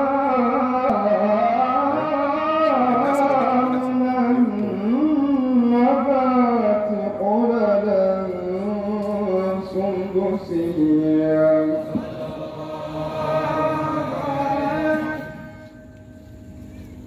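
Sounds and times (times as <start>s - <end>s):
man chanting: 0.0s - 15.8s.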